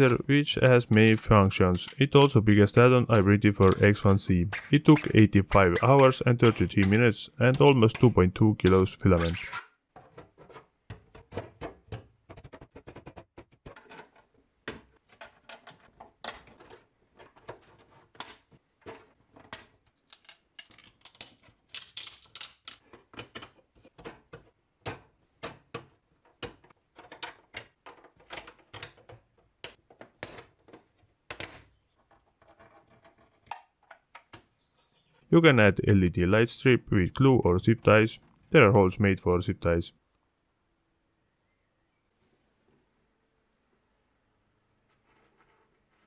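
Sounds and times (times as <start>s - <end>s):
plastic parts clicking and scraping: 3.0s - 34.9s.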